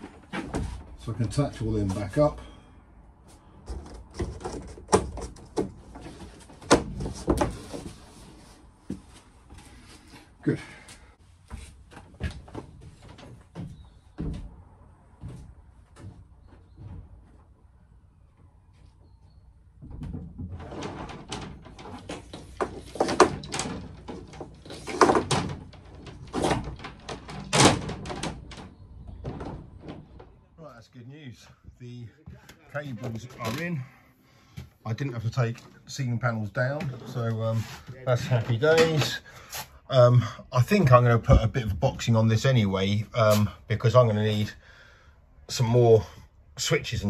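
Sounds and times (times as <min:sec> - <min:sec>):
ceiling panels knocking and rattling: 0:03.6 - 0:08.0, 0:11.9 - 0:17.6, 0:19.7 - 0:30.4.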